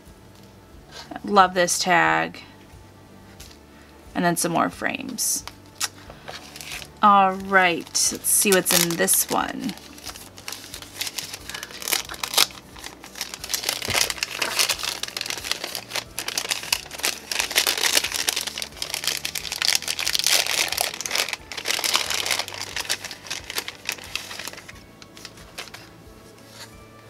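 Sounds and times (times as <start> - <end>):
tissue paper crinkling: 5.9 - 26.7.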